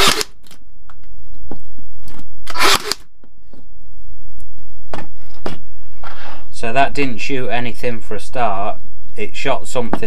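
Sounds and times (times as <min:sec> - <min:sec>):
nail gun firing: 0:00.0 - 0:00.3.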